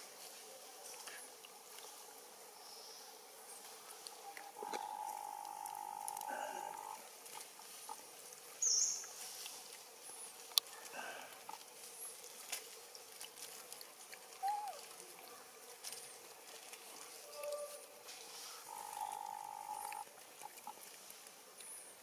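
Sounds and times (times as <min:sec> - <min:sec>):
faint high chirps: 0:04.4 - 0:07.0, 0:18.6 - 0:20.0
steady high tone: 0:04.6 - 0:07.0, 0:18.7 - 0:20.0.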